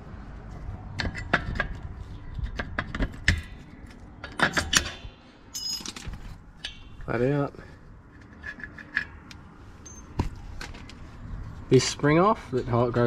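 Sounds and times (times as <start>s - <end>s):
metal brake parts clinking: 3.2s - 10.3s.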